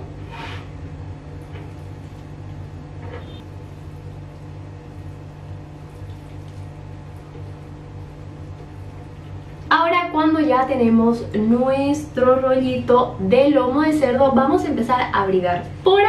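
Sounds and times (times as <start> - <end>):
soft handling of meat: 3.5 - 9.6.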